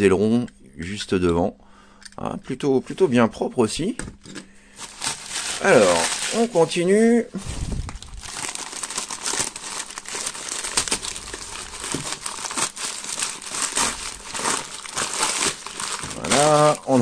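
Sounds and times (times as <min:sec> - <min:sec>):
paper wrapping crinkling: 0:04.8 - 0:17.0.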